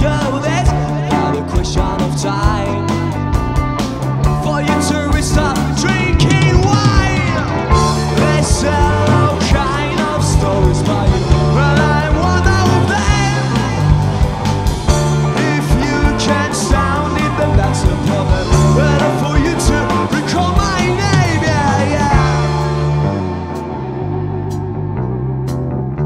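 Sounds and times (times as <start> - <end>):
man singing: 0.0 - 3.4, 4.2 - 14.4, 15.0 - 23.1
rock band playing live: 0.0 - 26.0.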